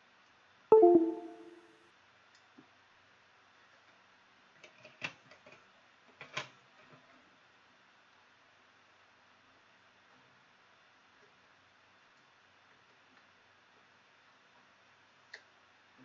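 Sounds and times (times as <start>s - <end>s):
ringing electronic chime: 0.7s - 1.6s.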